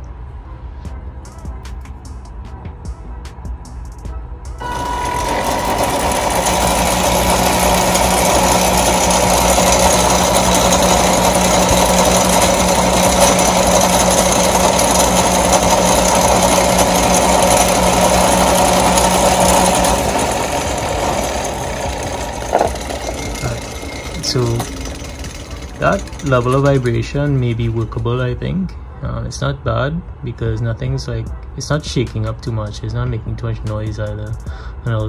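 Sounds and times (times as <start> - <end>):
electric motors humming: 4.6 - 28.2.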